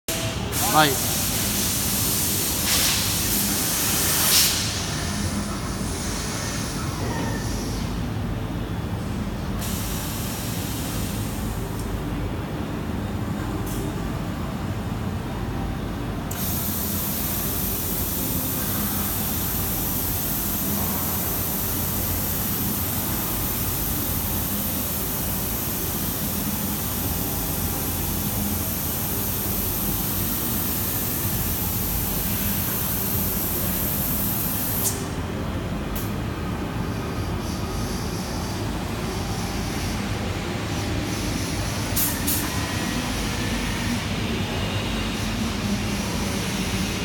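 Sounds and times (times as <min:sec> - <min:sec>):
compressed air hissing: 0:00.5 - 0:06.6, 0:16.3 - 0:35.0.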